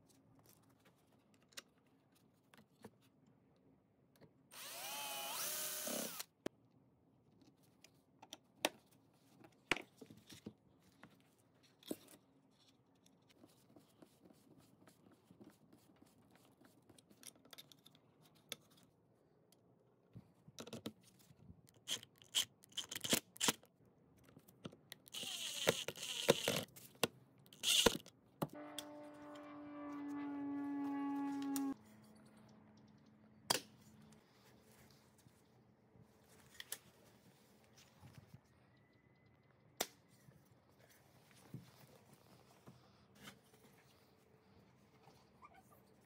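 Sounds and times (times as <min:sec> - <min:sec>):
cordless drill driving a screw: 0:04.5 - 0:06.4, 0:25.1 - 0:26.6, 0:27.6 - 0:28.0.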